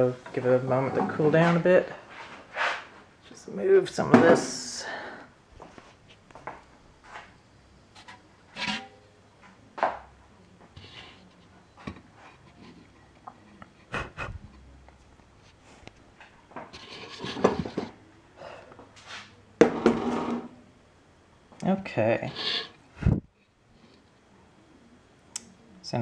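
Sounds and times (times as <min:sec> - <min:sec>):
rubbing and rustling: 0:00.8 - 0:03.3, 0:10.7 - 0:18.0, 0:19.0 - 0:19.4, 0:22.2 - 0:23.1.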